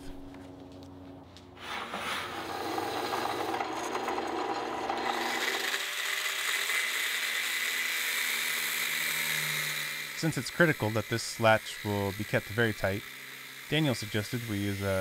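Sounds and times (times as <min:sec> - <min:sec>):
angle grinder cutting pipe: 0:01.6 - 0:15.0.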